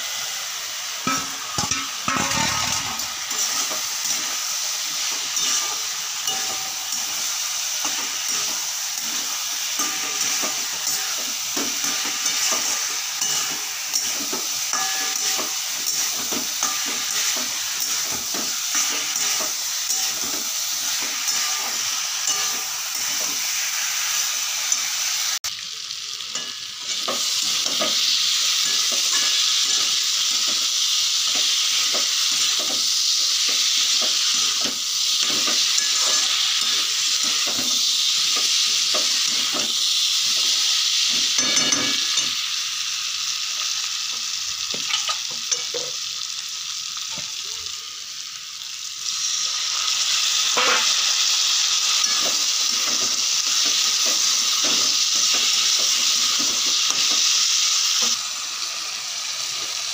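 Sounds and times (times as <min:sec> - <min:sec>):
vegetables sizzling in hot oil: 0:00.0 - 0:59.9
spatula scraping and knocking pan: 0:01.1 - 0:04.4, 0:07.8 - 0:23.5, 0:50.6 - 0:50.9.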